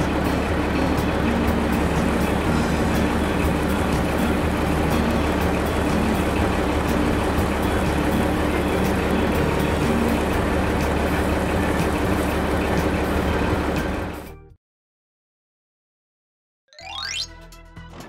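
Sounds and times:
asphalt paver rumbling and clattering: 0.0 - 14.3.

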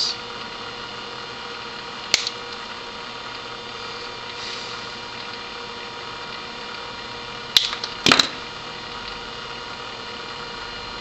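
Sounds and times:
steady background hum: 0.0 - 11.0
flush cutters snipping: 2.1 - 2.4.

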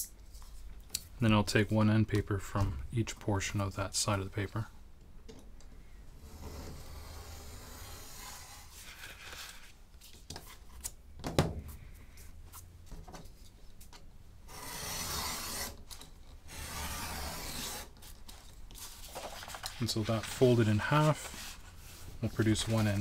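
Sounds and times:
paper rustling: 8.7 - 10.9, 18.0 - 23.0.

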